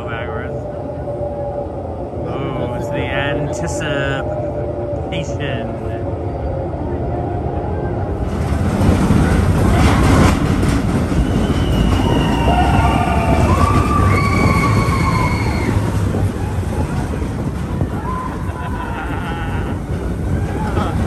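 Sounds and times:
roller coaster rumbling on track: 0.0 - 21.0
high drawn-out squeals: 9.7 - 21.0.

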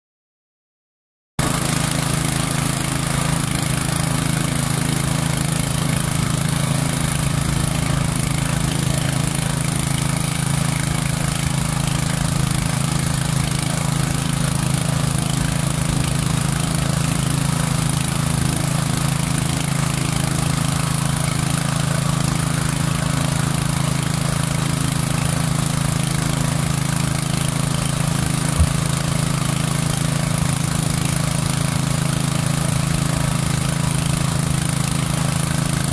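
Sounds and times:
brief knock: 28.6 - 28.8.

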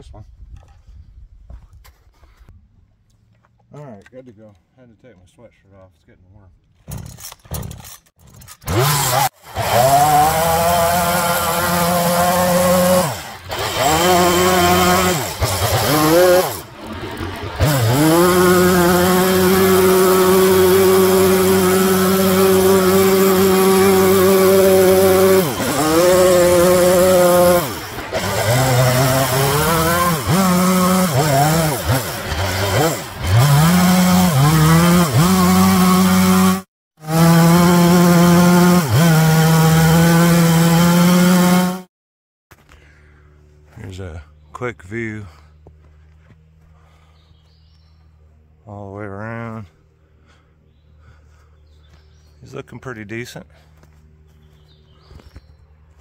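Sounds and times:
chainsaw cutting wood: 6.8 - 41.9.

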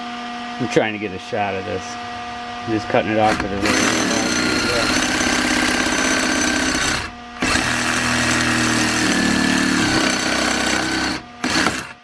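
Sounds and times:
cordless saw cutting metal: 3.2 - 12.0.

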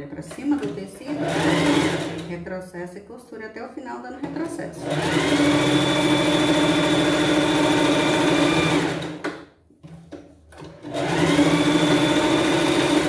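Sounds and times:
sewing machine motor running: 1.1 - 2.3, 4.8 - 9.2, 10.8 - 13.0.

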